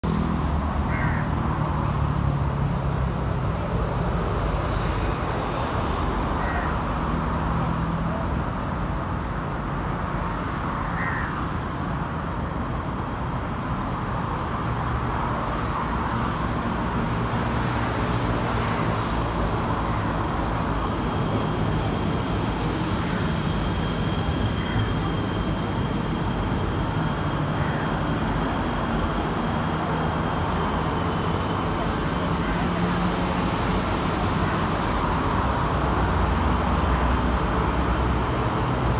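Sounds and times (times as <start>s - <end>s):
electric train rumbling: 0.0s - 38.9s
crow cawing: 0.9s - 1.3s, 6.4s - 6.8s, 10.8s - 11.4s, 27.6s - 27.9s.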